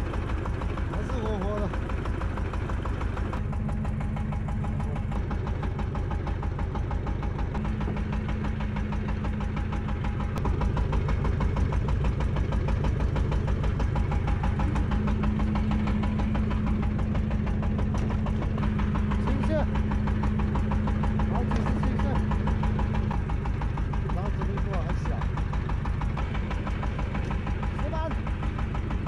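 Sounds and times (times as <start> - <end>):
boat engine idling: 0.0 - 29.0.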